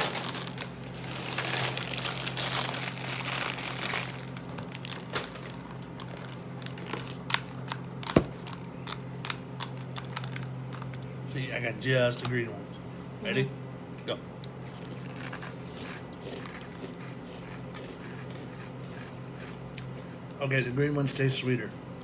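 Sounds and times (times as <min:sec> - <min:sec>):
plastic bag crinkling: 0:00.0 - 0:08.6.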